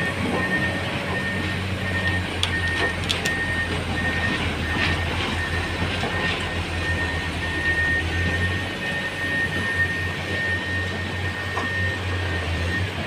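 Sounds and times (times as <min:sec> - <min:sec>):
high repeating beep: 0:00.0 - 0:09.9
diesel engines running: 0:00.0 - 0:13.0.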